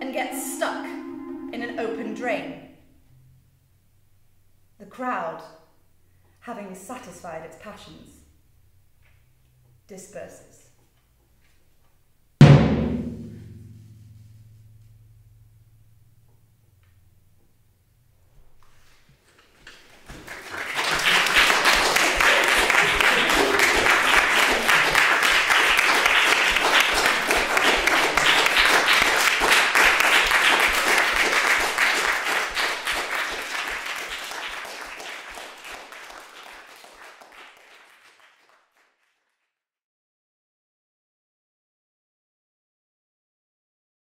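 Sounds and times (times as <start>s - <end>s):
audience applauding: 19.9s - 39.4s.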